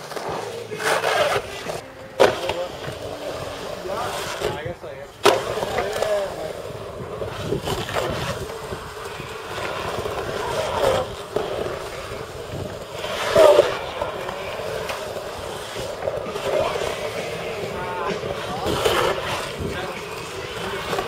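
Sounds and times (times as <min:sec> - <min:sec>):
skateboard wheels rolling on concrete: 0:00.0 - 0:21.0.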